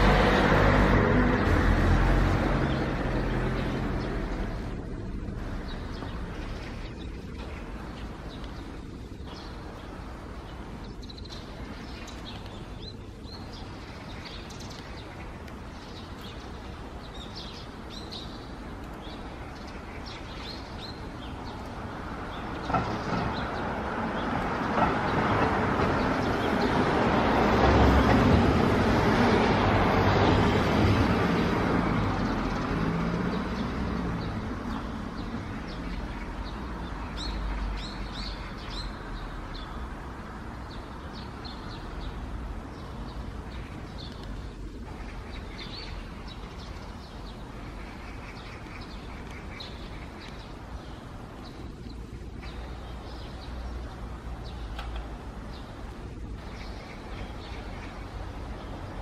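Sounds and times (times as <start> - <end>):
vehicle passing: 0.0 - 10.8, 20.7 - 51.8
low traffic rumble: 0.0 - 59.0
small birds chirping: 0.0 - 59.0.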